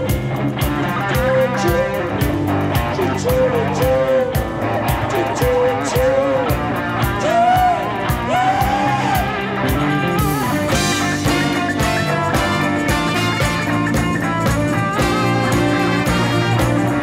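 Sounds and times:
live rock band: 0.0s - 17.0s
sliding melodic guitar phrases: 0.0s - 17.0s.

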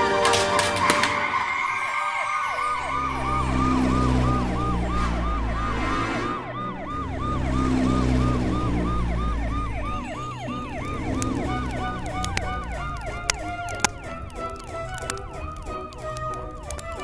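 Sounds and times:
toy fire engine siren wailing: 0.0s - 17.0s.

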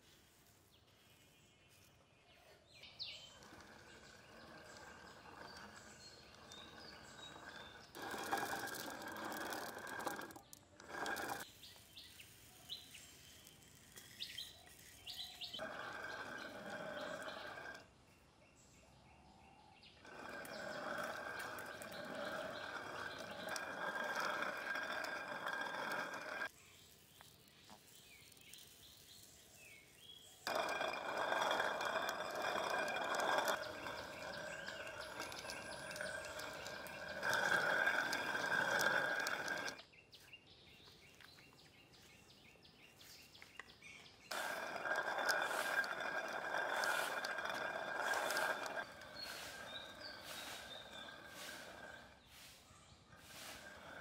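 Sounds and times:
stone quern grinding grain: 3.1s - 17.9s, 20.1s - 39.8s, 44.3s - 54.0s.

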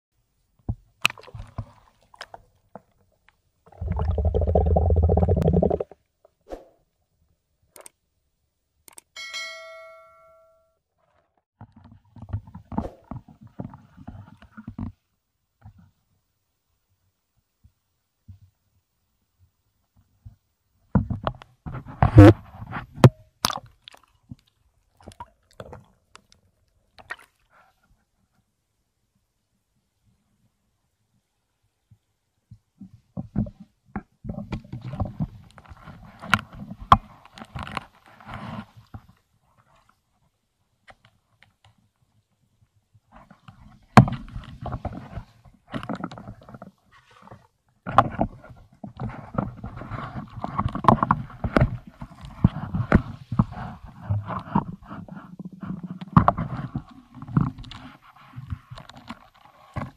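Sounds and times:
rumbling gurgle of bubbles: 3.7s - 6.0s
knocks and scrapes on rocks: 44.0s - 59.9s.

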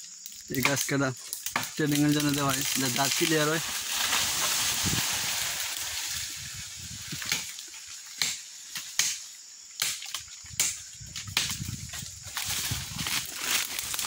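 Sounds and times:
rustling of dry leaves: 0.0s - 9.5s, 10.2s - 14.0s
machete chopping into wood: 7.2s - 7.6s, 8.2s - 11.7s.

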